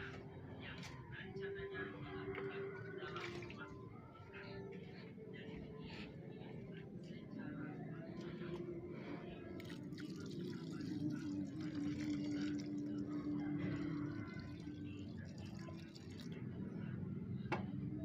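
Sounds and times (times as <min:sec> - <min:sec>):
water poured onto soil: 0:09.6 - 0:16.4.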